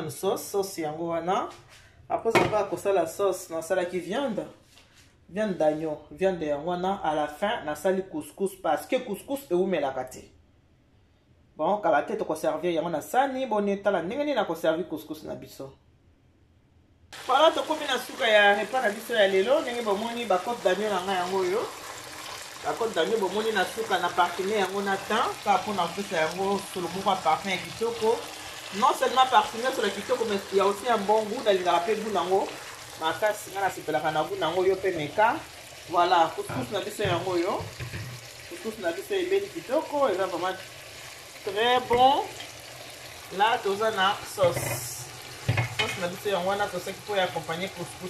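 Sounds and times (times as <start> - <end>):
woman speaking: 5.3 - 10.3, 17.3 - 21.7, 22.6 - 37.7, 38.5 - 40.6, 41.5 - 42.4, 43.3 - 45.1, 45.8 - 48.0
meat sizzling in a frying pan: 17.2 - 48.0.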